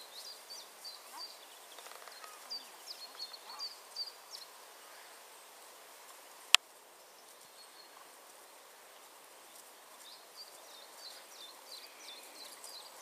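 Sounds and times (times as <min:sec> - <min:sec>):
small bird chirping: 0:00.0 - 0:05.0, 0:09.5 - 0:13.0
rural outdoor ambience: 0:00.0 - 0:13.0.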